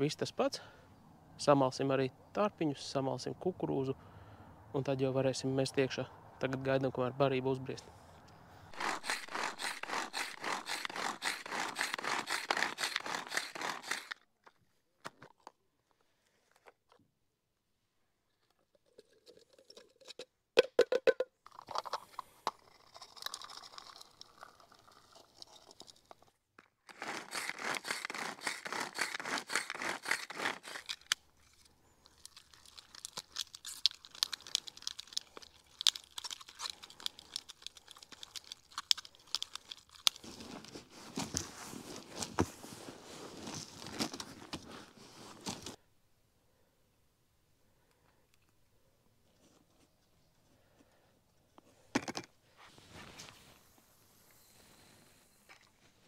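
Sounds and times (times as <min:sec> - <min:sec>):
hands mixing dry groundbait: 0:08.7 - 0:14.2, 0:21.5 - 0:42.2.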